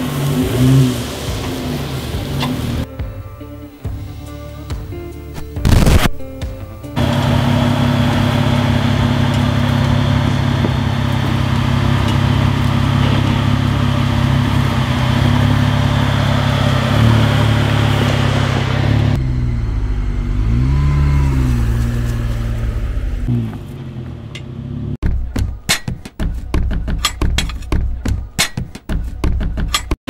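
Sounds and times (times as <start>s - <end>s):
engine running at low revs: 0.0s - 2.9s, 6.9s - 25.3s.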